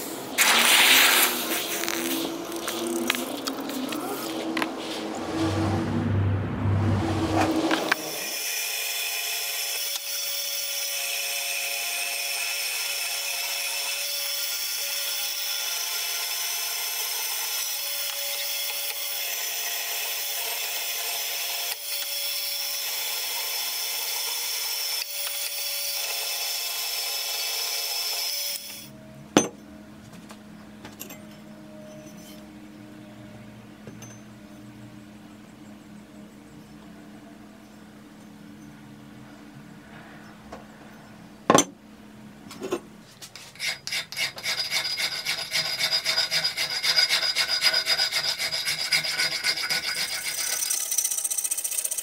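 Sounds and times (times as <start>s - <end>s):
low hum: 1.2s - 8.2s
band saw cutting metal: 4.9s - 28.9s, 43.4s - 52.0s.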